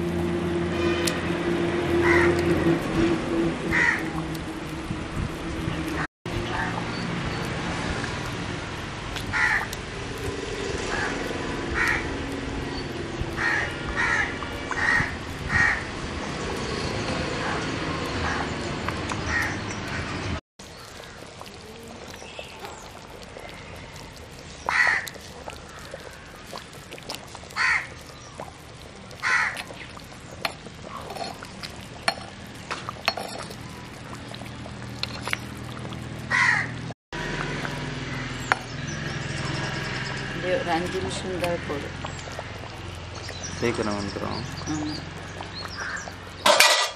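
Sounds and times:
crows cawing: 0:02.0 - 0:02.4, 0:03.7 - 0:04.1, 0:09.3 - 0:09.7, 0:10.9 - 0:12.0, 0:13.4 - 0:15.9, 0:24.7 - 0:26.4, 0:27.6 - 0:28.0, 0:29.2 - 0:29.6, 0:36.3 - 0:36.8, 0:45.7 - 0:46.8.

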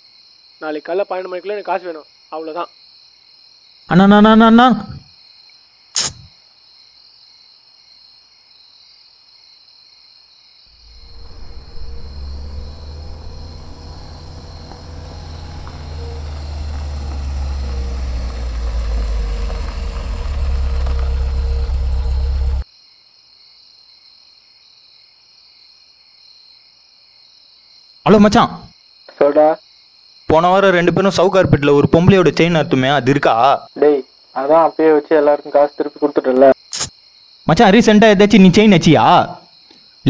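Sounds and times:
crickets chirping: 0:00.0 - 0:40.0
car engine rumble: 0:10.8 - 0:22.6.

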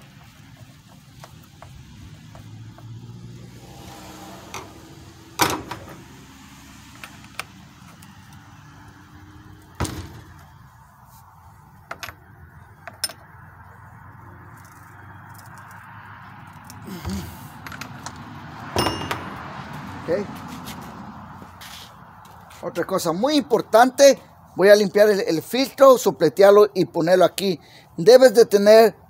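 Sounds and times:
sharp knocks: 0:18.8 - 0:19.4.

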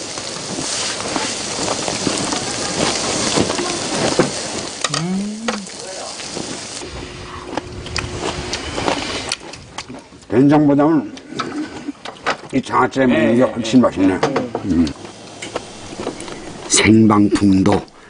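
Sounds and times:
meat sizzling on a grill: 0:00.0 - 0:06.9, 0:14.2 - 0:17.2
person humming: 0:04.8 - 0:05.8, 0:14.6 - 0:15.0.

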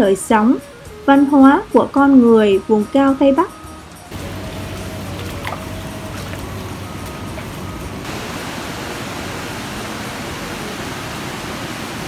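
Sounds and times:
faint musical tones: 0:00.0 - 0:08.1
rushing water: 0:04.0 - 0:12.0.

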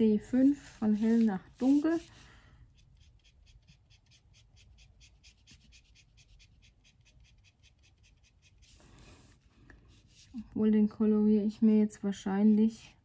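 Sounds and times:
marker scratching on paper: 0:00.3 - 0:10.4.

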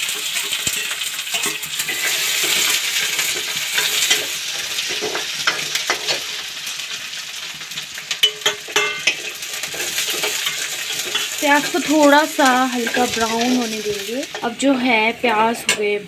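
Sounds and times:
onions sizzling in oil: 0:00.0 - 0:16.0
ladle scraping metal pan: 0:00.2 - 0:06.3, 0:08.7 - 0:14.5.

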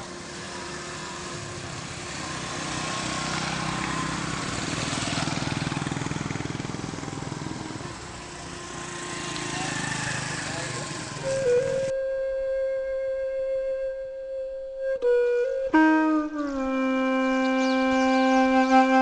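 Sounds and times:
motorbike engine passing by: 0:00.0 - 0:11.9.

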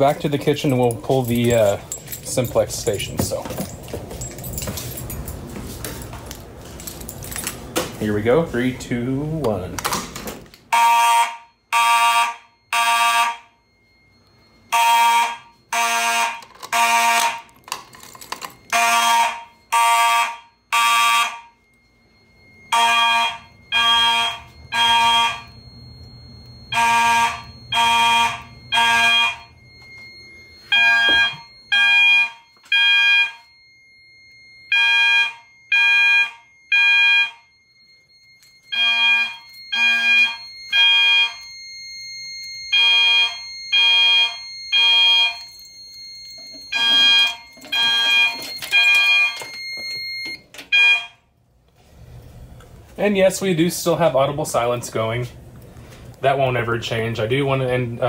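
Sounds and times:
fire alarm horn blasts: 0:00.0 - 0:03.8, 0:10.6 - 0:51.4.

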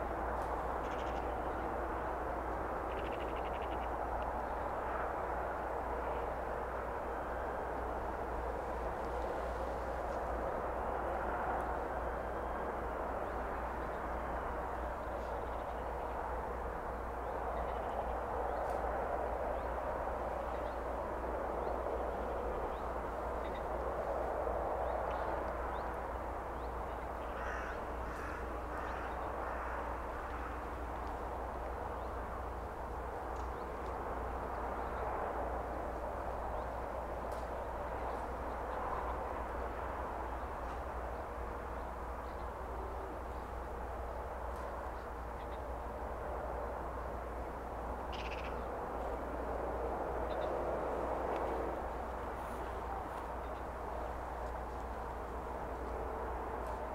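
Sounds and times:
rushing background noise: 0:00.0 - 0:56.9
crows cawing: 0:02.9 - 0:03.9, 0:27.2 - 0:30.8, 0:48.1 - 0:48.6.

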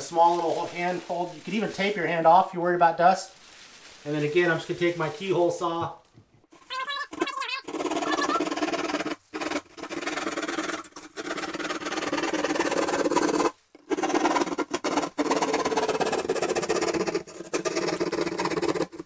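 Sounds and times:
hand saw rasping through drywall: 0:07.7 - 0:19.0.

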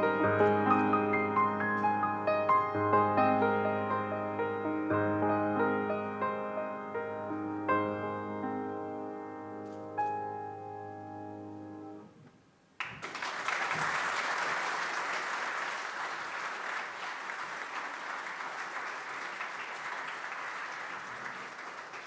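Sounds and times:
piano chord: 0:00.0 - 0:12.1
audience applause: 0:12.8 - 0:22.0.

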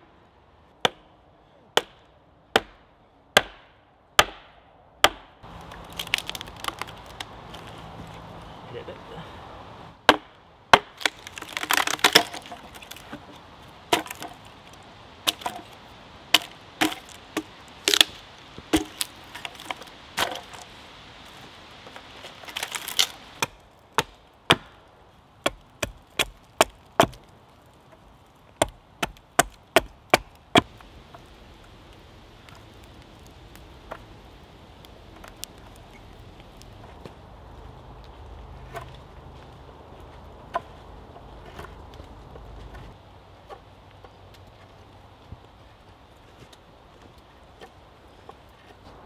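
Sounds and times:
axe chopping into log: 0:03.4 - 0:05.3, 0:10.0 - 0:13.3, 0:13.9 - 0:14.4, 0:15.3 - 0:20.7, 0:22.5 - 0:24.8, 0:25.4 - 0:27.2, 0:28.6 - 0:30.7
wood cracking and splintering: 0:05.0 - 0:08.5, 0:10.0 - 0:37.2.

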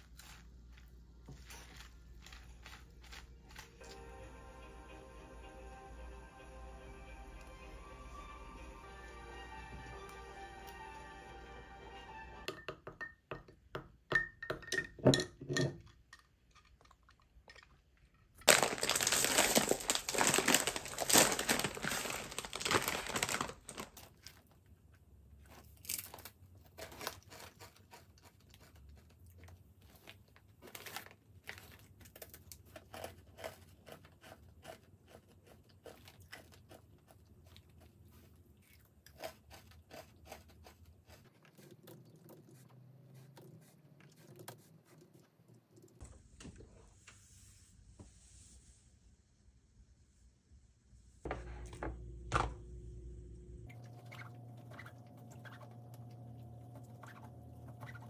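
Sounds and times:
chip bag crinkling: 0:00.0 - 0:04.0, 0:18.4 - 0:24.6, 0:25.5 - 0:33.5
chips being crunched: 0:18.4 - 0:24.2.

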